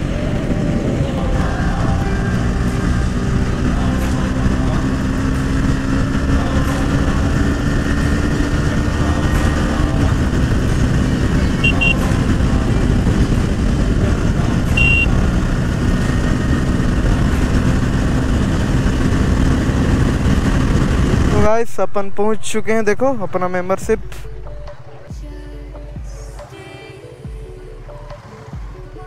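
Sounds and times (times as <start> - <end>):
motorcycle engine: 0.0 - 21.6
wind noise on microphone: 0.0 - 21.6
road rumble: 0.0 - 26.5
short high beeps: 11.6 - 12.0, 14.7 - 15.1.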